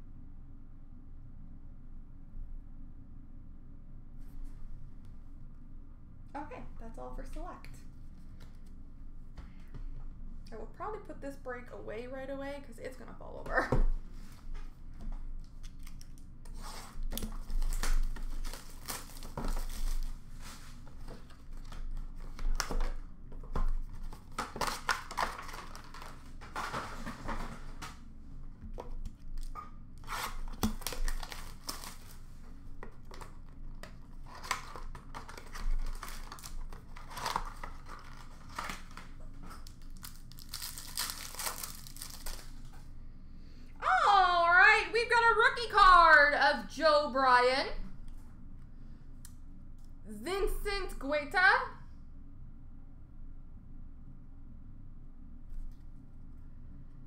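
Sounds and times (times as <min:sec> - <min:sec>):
plastic wrappers tearing: 0:17.0 - 0:20.3, 0:24.0 - 0:27.0, 0:29.4 - 0:32.2, 0:34.1 - 0:42.7
wrappers crumpled by hand: 0:17.3 - 0:20.8, 0:24.0 - 0:26.8, 0:30.0 - 0:32.3, 0:34.1 - 0:42.7.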